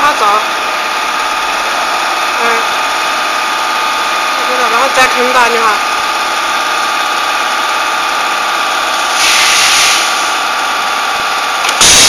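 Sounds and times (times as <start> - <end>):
hissing burst: 9.0 - 10.4, 11.6 - 12.0.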